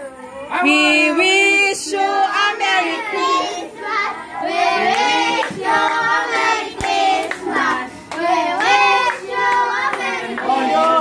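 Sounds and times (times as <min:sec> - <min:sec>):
children singing a carol: 0:00.5 - 0:11.0.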